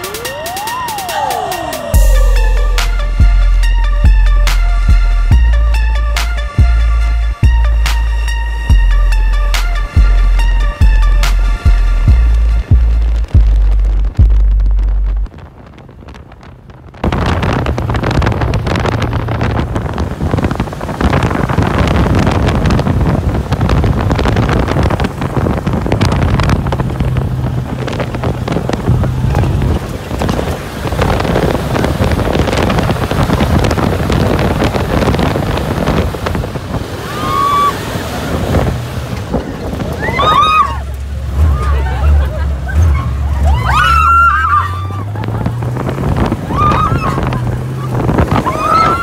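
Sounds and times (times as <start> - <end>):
high-pitched shout: 0.0 - 2.9, 39.9 - 41.8, 42.8 - 45.1, 46.4 - 47.4, 48.4 - 49.0
wind rushing over microphone: 0.0 - 49.0
buggy engine running: 1.9 - 49.0.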